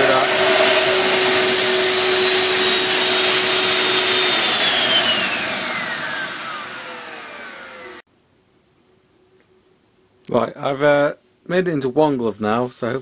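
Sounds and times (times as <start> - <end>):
turbocharger turbine whine: 0.0 - 8.0.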